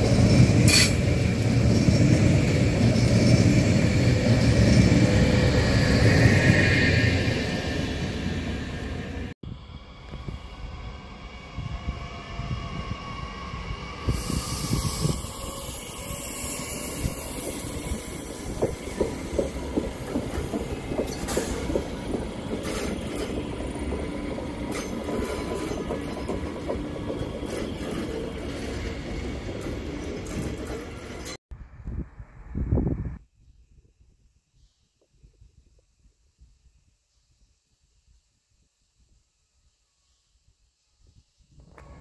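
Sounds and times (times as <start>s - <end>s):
train moving on rails: 0.0s - 33.2s
wheel squeal: 14.0s - 19.6s.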